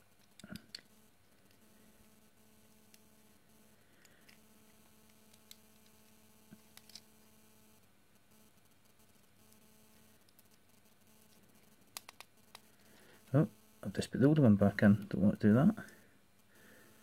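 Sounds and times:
faint hum: 0:00.0 - 0:17.0
small clicks and taps: 0:11.3 - 0:12.7.

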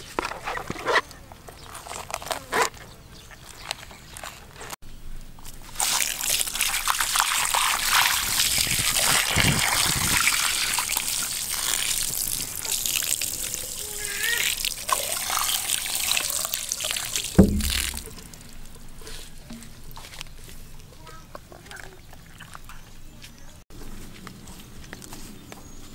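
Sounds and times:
water pouring and splashing: 0:05.4 - 0:20.2
low thump: 0:17.4 - 0:18.6.

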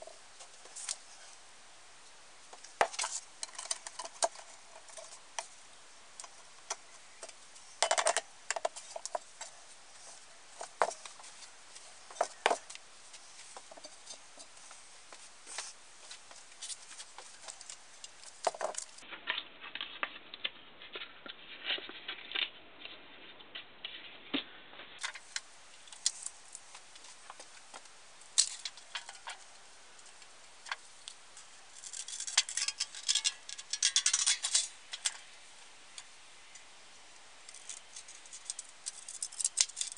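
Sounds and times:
metal parts clicking and tapping: 0:31.8 - 0:35.2, 0:37.5 - 0:39.9.

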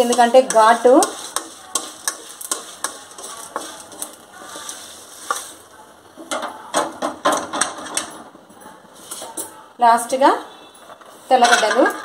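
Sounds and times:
spatula scraping a pan: 0:00.0 - 0:05.7.

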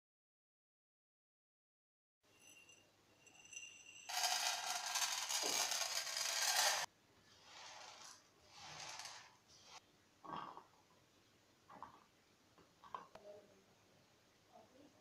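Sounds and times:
dry noodles rattling into a pan: 0:04.1 - 0:06.9.

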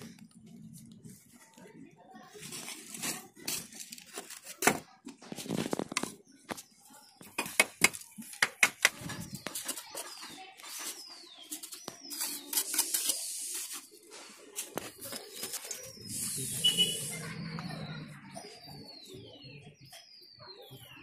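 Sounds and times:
bricks and tools knocking: 0:07.2 - 0:10.9
birds whistling: 0:14.9 - 0:21.0.

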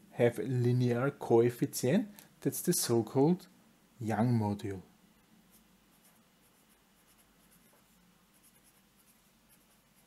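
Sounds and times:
felt-tip pen scratching on paper: 0:05.5 - 0:10.0.

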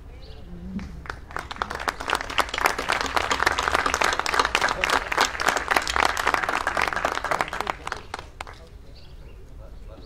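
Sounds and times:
audience applause: 0:01.0 - 0:08.6.

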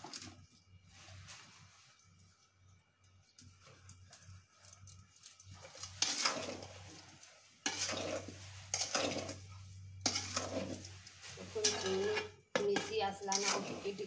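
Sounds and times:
metal spoon scraping steel bowl: 0:05.6 - 0:14.0.

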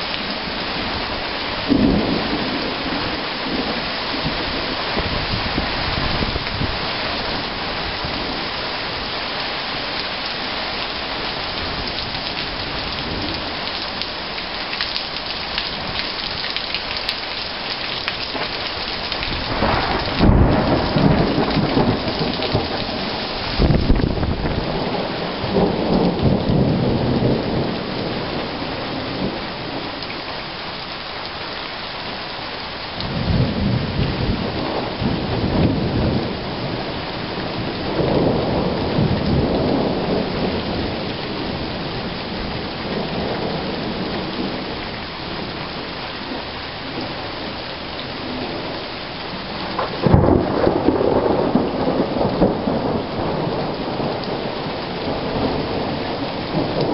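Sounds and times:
steady rain: 0:00.0 - 0:56.9
thunder cracking and rumbling: 0:01.6 - 0:08.5, 0:18.1 - 0:29.8, 0:33.0 - 0:44.8, 0:49.6 - 0:56.9.

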